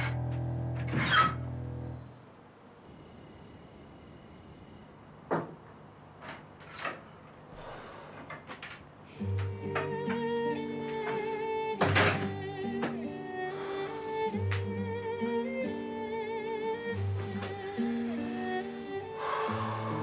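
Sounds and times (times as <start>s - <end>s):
soft music with low drone: 0.0s - 2.1s, 9.1s - 20.0s
door opening knocks and clicks: 11.8s - 13.0s.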